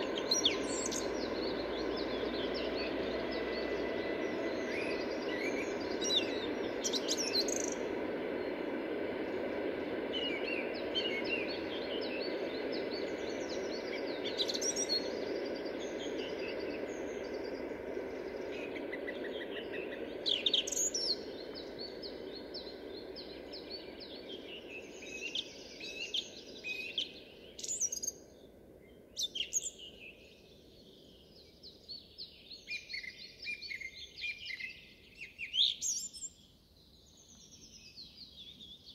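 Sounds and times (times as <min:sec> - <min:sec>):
low background rumble: 0:00.0 - 0:29.2.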